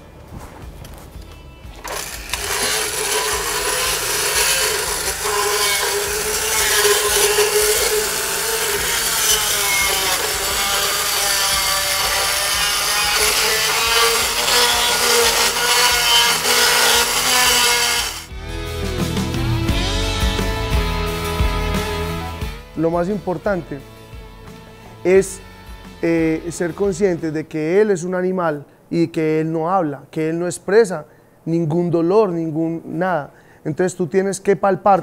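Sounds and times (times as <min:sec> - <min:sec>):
dental float motor grinding teeth: 0:01.8 - 0:18.3.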